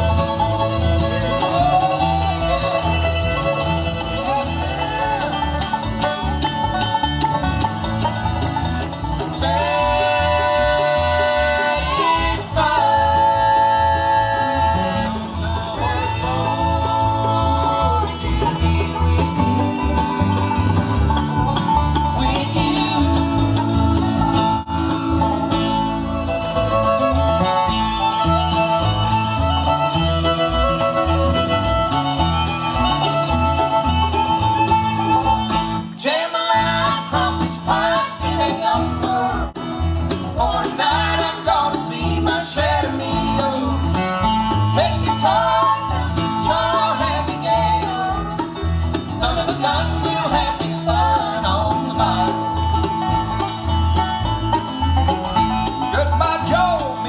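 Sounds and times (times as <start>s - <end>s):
acoustic guitar: 0.0s - 57.0s
banjo: 0.0s - 57.0s
fiddle: 0.0s - 57.0s
upright bass: 0.0s - 57.0s.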